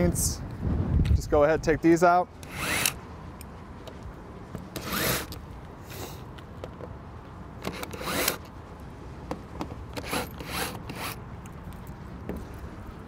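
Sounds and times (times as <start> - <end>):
cordless drill whirring: 2.4 - 3.0, 4.8 - 5.4, 7.6 - 8.4.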